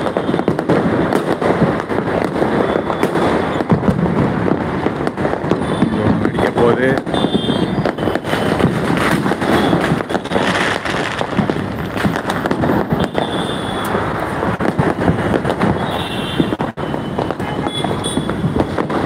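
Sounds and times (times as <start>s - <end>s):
fireworks bangs and crackles: 0.0s - 19.0s
high whistling fireworks: 0.0s - 19.0s.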